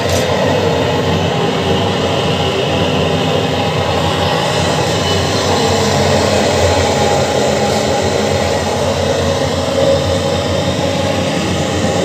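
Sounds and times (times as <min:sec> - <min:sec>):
gas burner flame roaring: 0:00.0 - 0:12.0.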